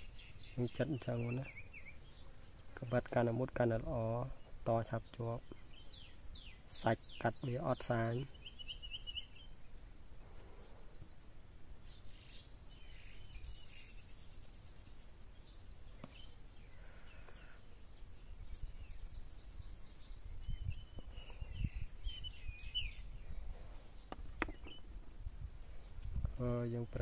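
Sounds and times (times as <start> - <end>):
small birds chirping: 0.0 - 27.0.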